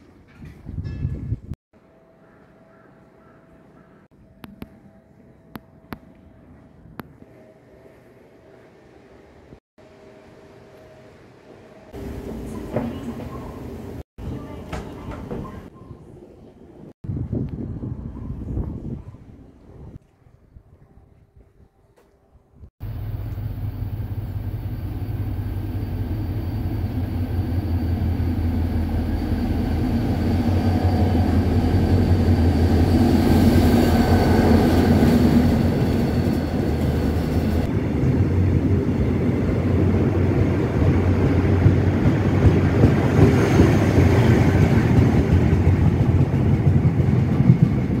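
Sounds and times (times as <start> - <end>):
train rolling past: 6.1 - 15.8, 22.8 - 48.0
low engine drone: 22.8 - 32.1.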